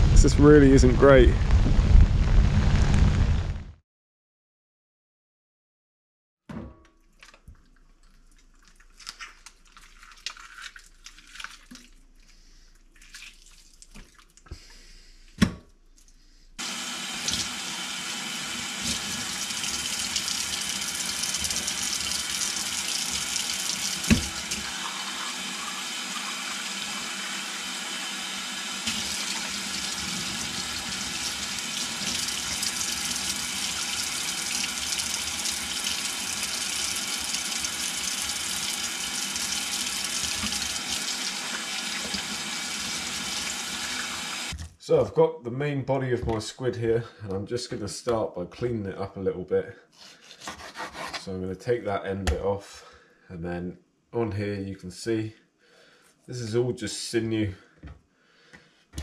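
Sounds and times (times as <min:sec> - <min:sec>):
tap water running into sink: 0:17.1 - 0:27.9, 0:28.5 - 0:44.6.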